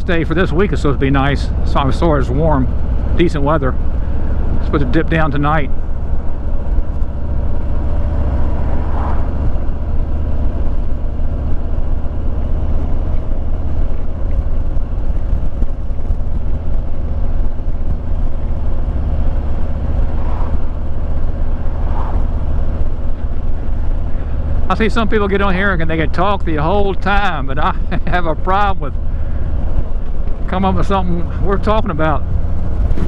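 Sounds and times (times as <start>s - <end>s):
motorcycle engine running: 0.0s - 33.0s
wind buffeting microphone: 0.0s - 33.0s.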